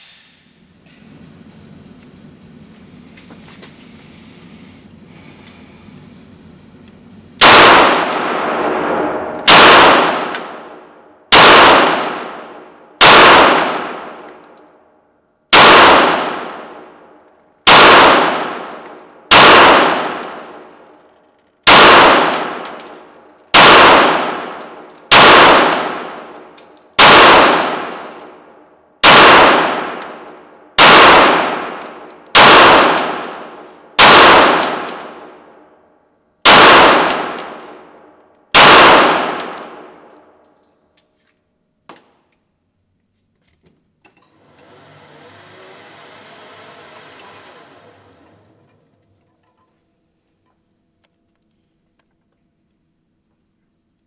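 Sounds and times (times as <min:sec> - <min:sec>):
pistol shots echoing indoors: 0:07.4 - 0:40.9.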